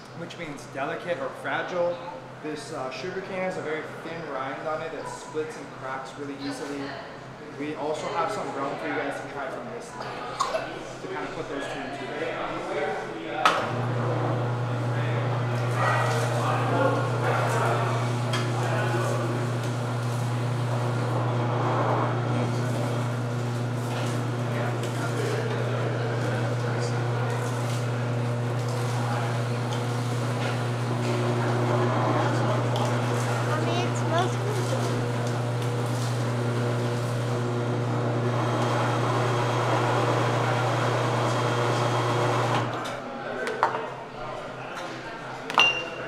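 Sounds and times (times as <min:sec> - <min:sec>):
sugarcane juicer motor hum: 0:12.2 - 0:43.0.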